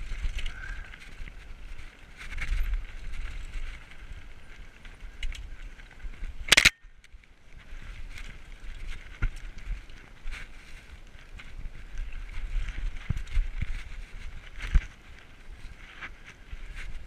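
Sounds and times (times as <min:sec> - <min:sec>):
bike rattling: 0:00.0 - 0:17.0
bike tyres crunching on rocky dirt: 0:00.0 - 0:17.0
wind rumble on microphone: 0:00.0 - 0:17.0.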